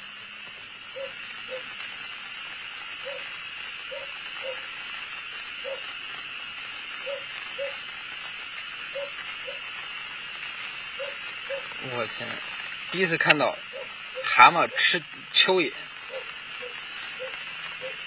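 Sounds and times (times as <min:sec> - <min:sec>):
steady high hiss: 0:00.0 - 0:18.0
short animal calls: 0:07.0 - 0:07.8, 0:08.9 - 0:09.6, 0:11.0 - 0:11.8, 0:13.6 - 0:15.0, 0:16.0 - 0:18.0.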